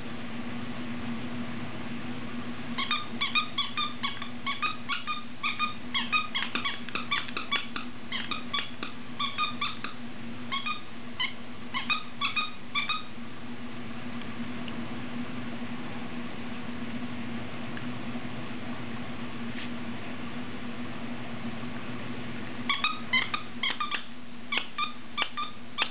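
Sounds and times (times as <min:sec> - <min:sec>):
steady low hum: 0:00.0 - 0:25.9
squeaky toy squeaking: 0:02.8 - 0:09.9, 0:10.6 - 0:13.1, 0:22.7 - 0:25.9.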